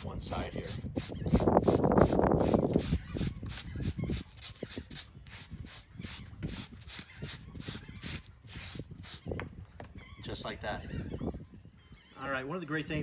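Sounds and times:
wire brush scraping fish scales: 0:00.0 - 0:09.3.

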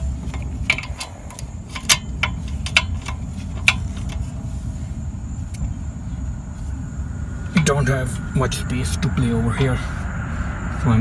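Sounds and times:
low rumble: 0:00.0 - 0:11.0
wrench clicking on metal: 0:00.2 - 0:04.2.

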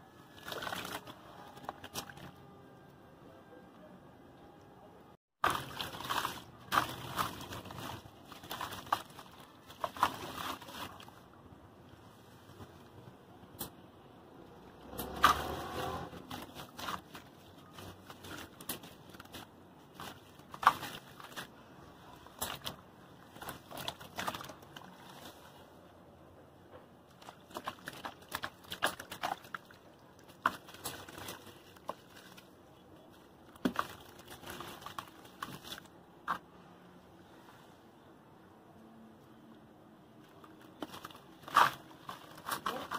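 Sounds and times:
hands squelching wet cement: 0:00.3 - 0:02.2, 0:05.4 - 0:11.3, 0:15.0 - 0:25.7, 0:27.1 - 0:36.5, 0:40.2 - 0:42.9.

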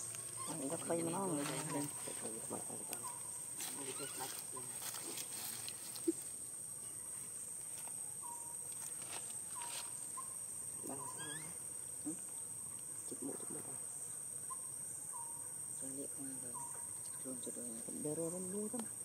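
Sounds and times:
faint insect chirps: 0:00.0 - 0:19.0
high-pitched insect drone: 0:08.1 - 0:19.0.

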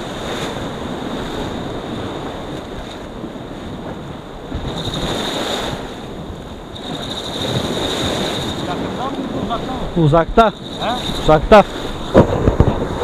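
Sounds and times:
waves splashing against rocks: 0:00.0 - 0:13.0
wind buffeting microphone: 0:00.0 - 0:13.0.

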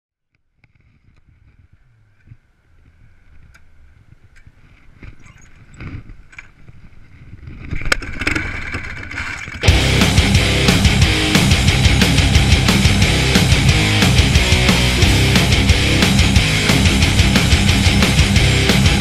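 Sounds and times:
loud rock music: 0:09.6 - 0:19.0.

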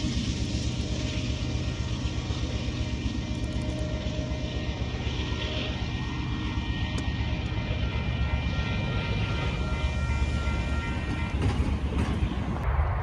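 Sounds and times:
diesel locomotive engine rumble: 0:00.0 - 0:13.0
faint whining tones: 0:00.0 - 0:13.0.

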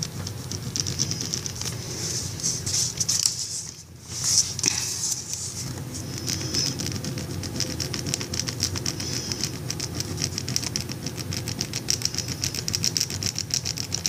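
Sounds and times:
pencil scratching on paper: 0:00.0 - 0:10.8
steady low hum: 0:00.0 - 0:14.0.

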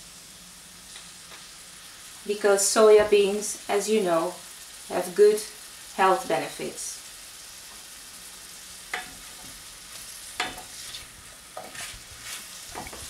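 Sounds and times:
vegetables sizzling in a frying pan: 0:00.0 - 0:13.0
wooden spatula scraping a pan: 0:09.0 - 0:13.0.

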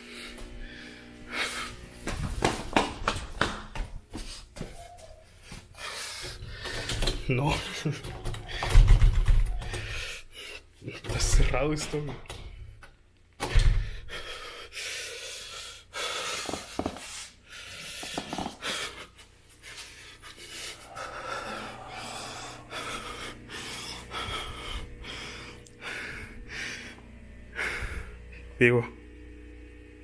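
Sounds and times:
man breathing hard: 0:00.0 - 0:01.9, 0:04.1 - 0:10.8, 0:13.5 - 0:28.4.

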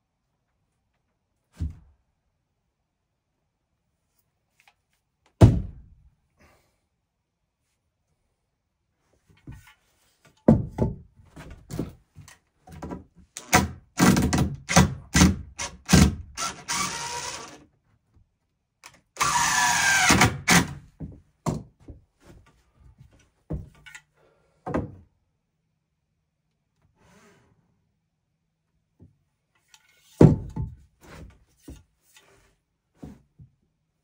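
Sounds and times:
impact driver driving screws: 0:13.4 - 0:17.6, 0:19.2 - 0:20.8.

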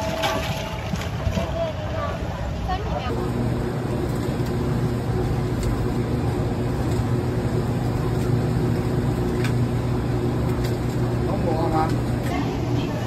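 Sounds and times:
motor humming: 0:03.1 - 0:13.0.

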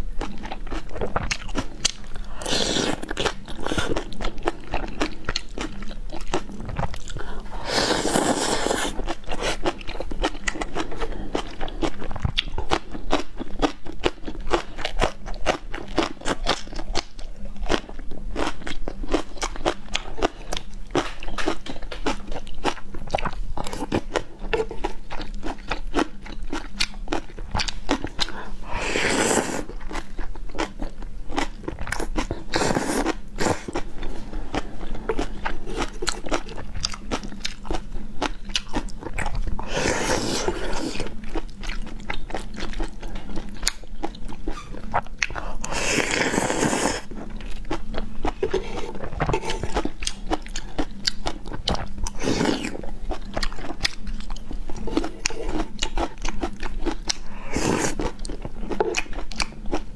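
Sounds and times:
faint low hum: 0:00.0 - 0:59.9
wet chewing and mouth clicks: 0:00.0 - 0:59.9
noodle slurp: 0:07.2 - 0:09.8, 0:28.7 - 0:29.8, 0:39.6 - 0:41.1, 0:45.3 - 0:47.2, 0:48.3 - 0:50.0.

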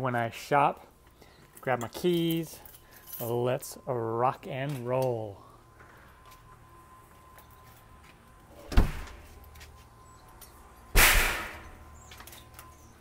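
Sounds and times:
door thumping shut: 0:08.7 - 0:09.2, 0:11.0 - 0:11.7.

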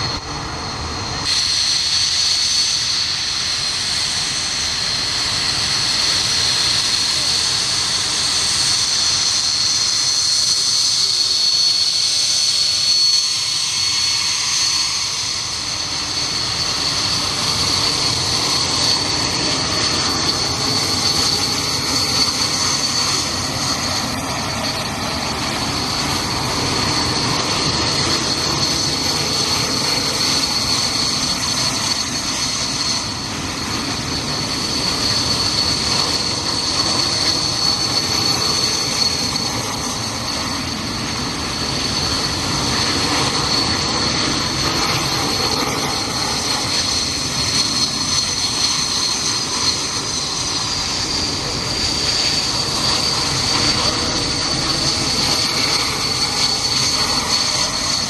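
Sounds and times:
jet aircraft taxiing: 0:00.0 - 0:58.0.

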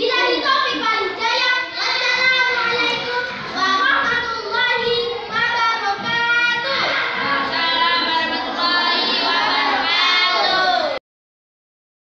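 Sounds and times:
child singing: 0:00.0 - 0:11.0.

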